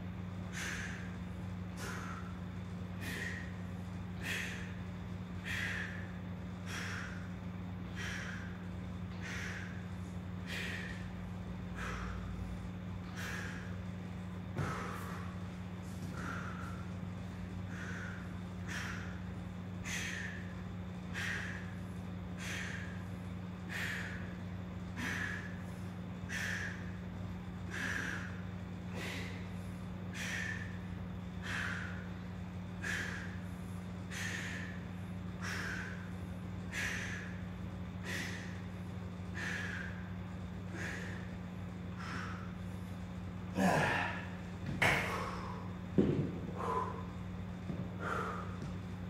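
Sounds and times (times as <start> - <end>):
low hum: 0.0 - 49.0.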